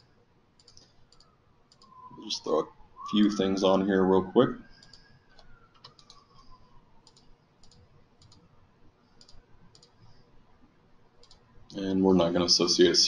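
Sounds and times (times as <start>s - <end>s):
computer mouse clicks: 0.0s - 2.0s, 4.7s - 8.5s, 9.1s - 10.2s, 11.2s - 11.5s.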